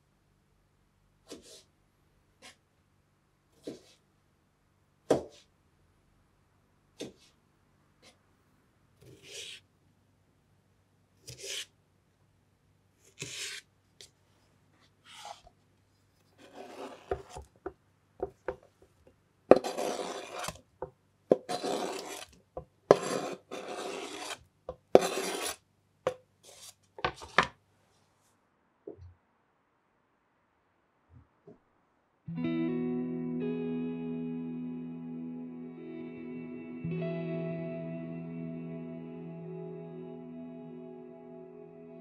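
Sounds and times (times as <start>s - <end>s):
knife cutting on wooden board: 3.6s - 4.0s, 11.2s - 11.7s, 13.2s - 13.6s, 16.4s - 17.5s, 19.5s - 20.6s, 21.3s - 25.6s
knife scraping across board: 9.1s - 9.6s, 11.3s - 11.7s, 13.2s - 13.6s, 15.1s - 15.5s, 16.4s - 17.5s, 19.5s - 20.6s, 21.3s - 25.6s, 26.4s - 27.5s.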